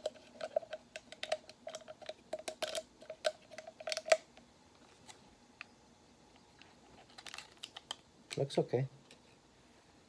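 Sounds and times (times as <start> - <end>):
packet crinkling as torn open: 0.1 - 4.3, 7.0 - 8.5.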